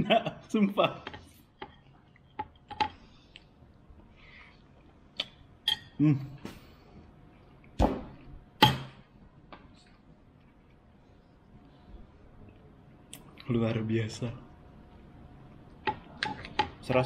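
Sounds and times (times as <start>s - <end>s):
person humming: 6.0s - 6.4s.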